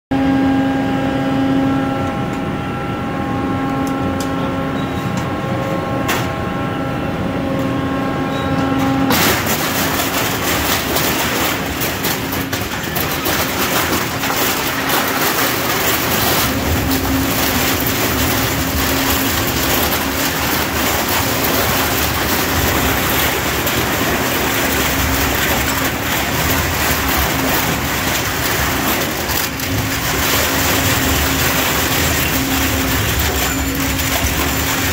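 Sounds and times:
plastic and metal crunching: 9.1 - 34.9
shredder humming: 9.1 - 34.9.

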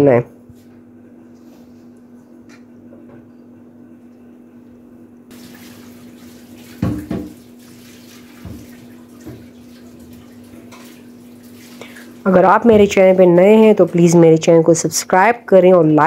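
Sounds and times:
oil bubbling and sizzling: 5.3 - 12.3.

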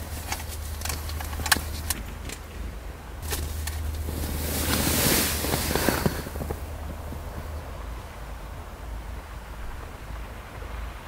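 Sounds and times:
low steady hum: 0.0 - 11.0
tent fabric rustling: 3.2 - 7.4.

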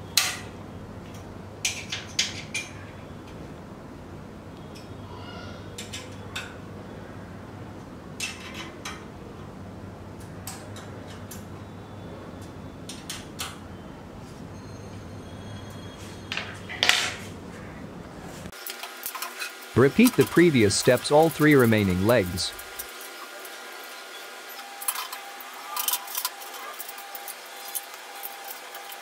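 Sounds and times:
steady low hum: 19.7 - 23.0.

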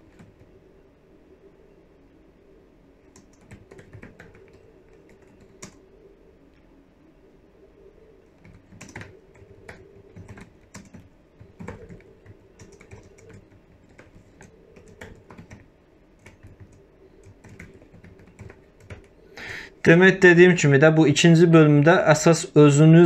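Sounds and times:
computer keyboard typing: 0.0 - 0.4, 3.1 - 5.8, 8.4 - 19.2.

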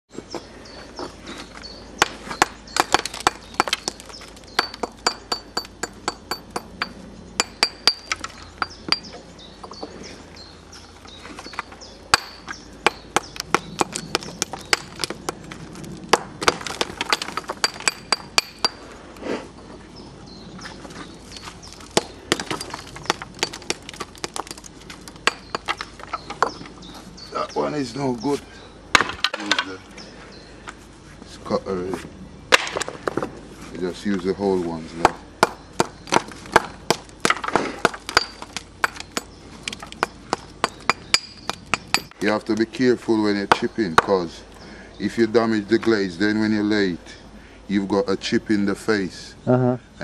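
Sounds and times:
bricks clinking together: 2.8 - 9.1, 16.1 - 18.8, 21.8 - 26.5, 35.4 - 42.3.

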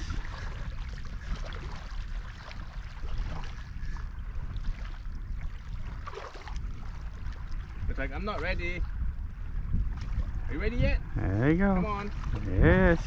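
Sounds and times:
small waves lapping: 0.0 - 13.0
wind rumbling on microphone: 0.0 - 13.0.

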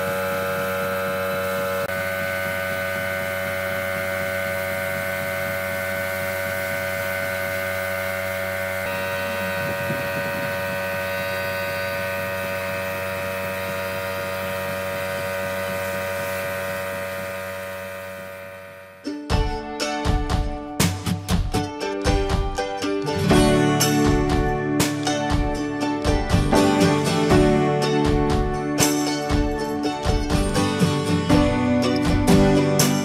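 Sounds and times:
air compressor hum: 0.0 - 19.1.

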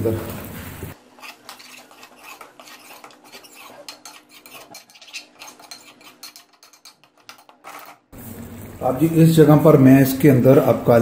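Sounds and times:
metal spoon scraping metal pot: 1.1 - 8.1.

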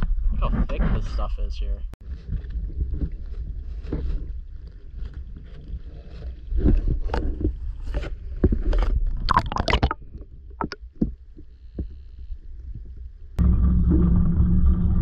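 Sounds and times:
muffled water sloshing and gurgling: 2.0 - 15.0
crackling splashes: 8.9 - 11.7
low rumble: 9.2 - 15.0.

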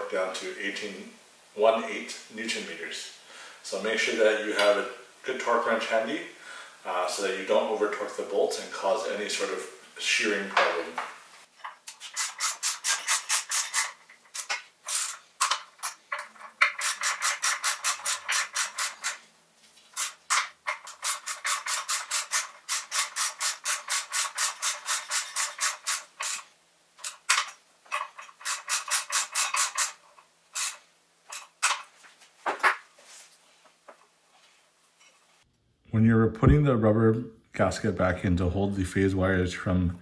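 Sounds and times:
ratchet wrench clicking: 20.0 - 26.4, 27.0 - 30.0.

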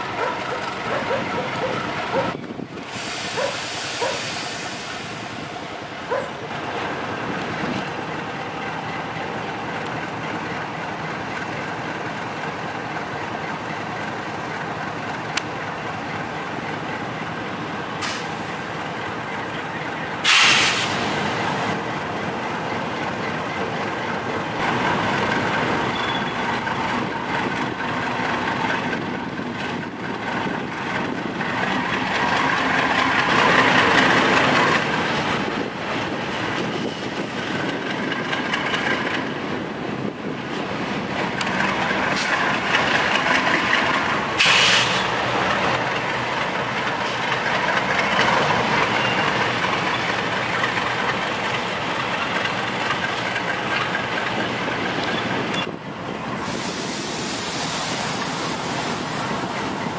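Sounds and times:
diesel locomotive running slowly: 0.0 - 59.9
loud short hisses: 20.2 - 21.1, 44.4 - 45.1, 56.4 - 59.2
wagon wheels rolling on rails: 45.2 - 55.6.

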